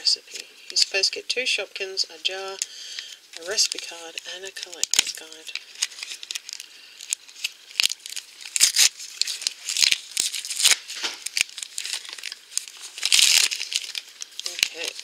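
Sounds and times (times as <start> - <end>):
plastic shrink-wrap crinkling and tearing: 2.3 - 15.0.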